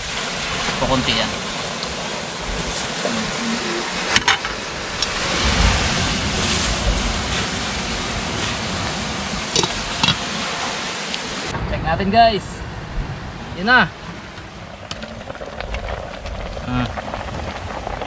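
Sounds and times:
surf: 0.0s - 18.0s
low rumbles: 11.5s - 18.0s.

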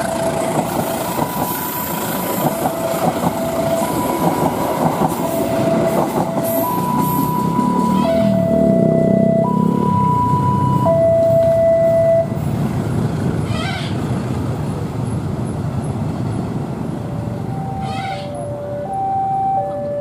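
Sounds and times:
level-crossing two-tone alarm: 0.0s - 12.4s, 17.3s - 20.0s
lower-pitched two-tone alarm: 0.0s - 12.4s, 17.4s - 20.0s
train wheels rumbling on rails: 0.0s - 18.9s.

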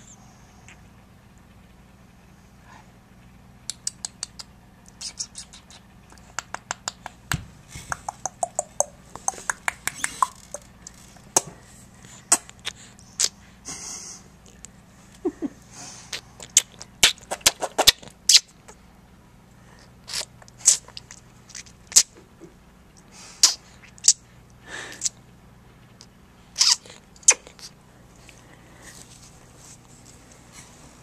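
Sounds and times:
baby sucking clicks and smacks: 3.7s - 7.2s, 7.8s - 11.5s, 12.3s - 13.4s, 16.1s - 18.5s, 20.1s - 22.1s, 23.4s - 24.2s.

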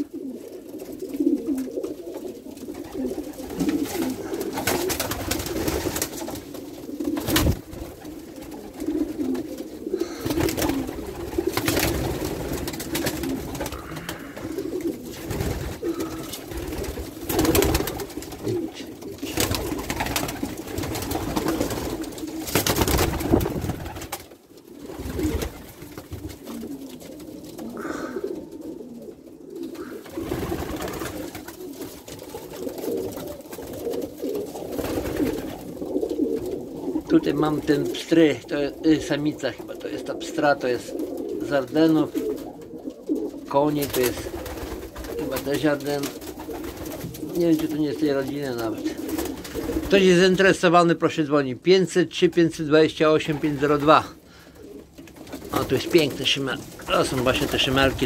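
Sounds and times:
pigeons cooing: 0.0s - 58.0s
short loud pigeon noises: 2.7s - 24.2s, 27.6s - 38.4s.

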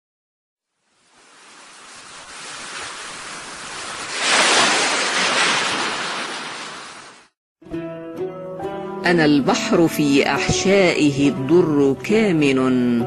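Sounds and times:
sea waves breaking: 0.9s - 7.4s.

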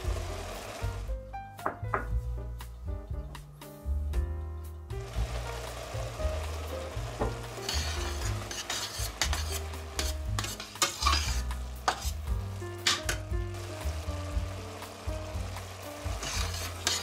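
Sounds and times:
meat sizzling in a pot: 0.0s - 1.2s, 5.0s - 17.0s
metal spoon scraping a pot: 7.6s - 13.2s, 16.2s - 17.0s.

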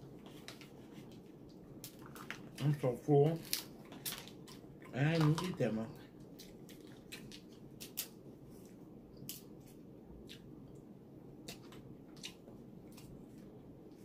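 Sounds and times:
steady low background noise: 0.0s - 14.0s
wet eating clicks and smacks: 6.2s - 13.6s.

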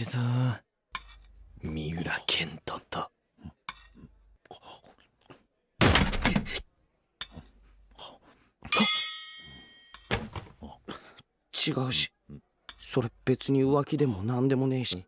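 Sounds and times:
cartoon thunk: 5.8s - 6.6s
bright ringing tone: 8.7s - 10.2s.

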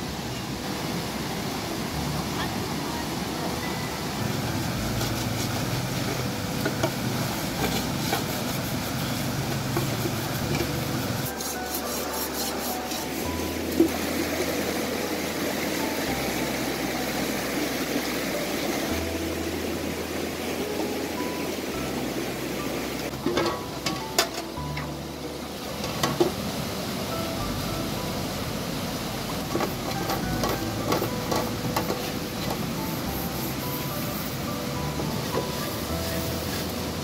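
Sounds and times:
fast river rushing: 0.0s - 37.0s
music of low held notes: 0.0s - 37.0s
metal pots being scrubbed: 7.6s - 13.3s.

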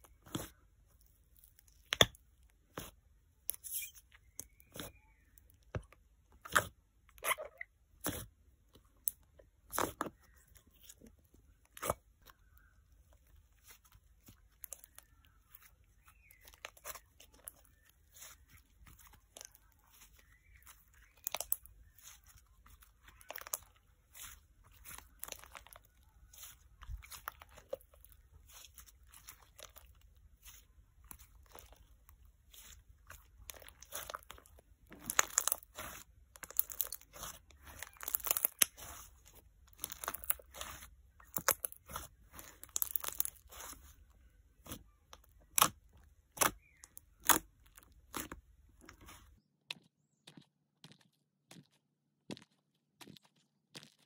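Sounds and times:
slime crackling and popping: 16.0s - 43.9s, 44.6s - 49.1s.

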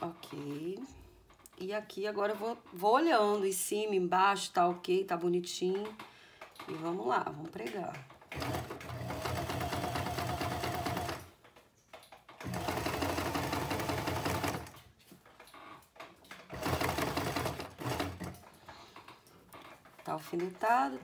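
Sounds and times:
sewing machine stitching: 8.0s - 11.4s, 12.4s - 14.8s, 16.3s - 18.5s.

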